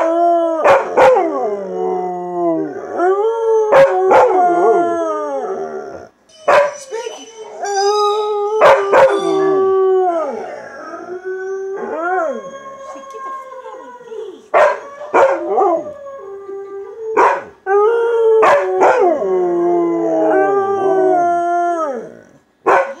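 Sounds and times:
dog howling: 0:00.0 - 0:22.3
dog barking: 0:06.5 - 0:06.8, 0:14.6 - 0:15.4, 0:17.2 - 0:17.5, 0:22.7 - 0:23.0.

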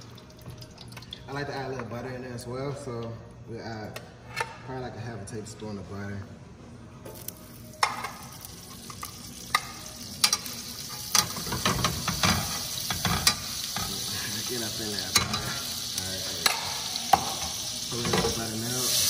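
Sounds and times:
butter sizzling in frying pan: 0:08.2 - 0:19.0.

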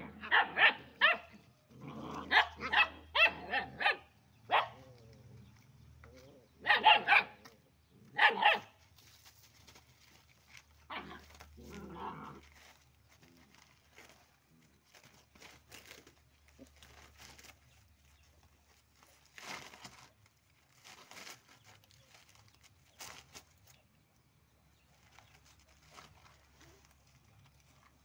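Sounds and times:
cardboard crinkling and scuffling: 0:08.8 - 0:23.8, 0:24.8 - 0:28.0.

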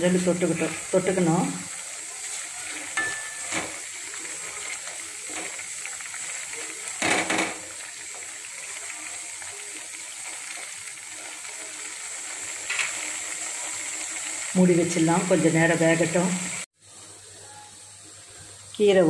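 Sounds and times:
vegetables simmering: 0:00.0 - 0:19.0.

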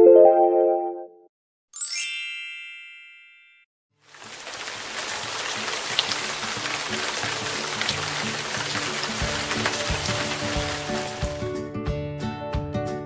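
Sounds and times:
bell-like chime: 0:01.8 - 0:03.7.

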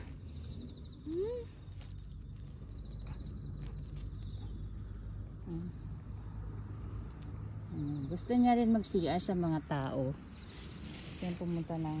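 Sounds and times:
cricket trilling: 0:00.0 - 0:12.0
low background rumble: 0:00.0 - 0:12.0
woman humming: 0:01.0 - 0:01.7, 0:05.4 - 0:05.8.

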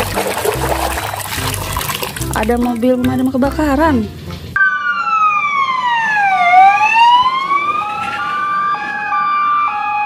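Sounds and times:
siren wailing: 0:04.6 - 0:10.0
two-tone hi-lo siren: 0:04.6 - 0:10.0.

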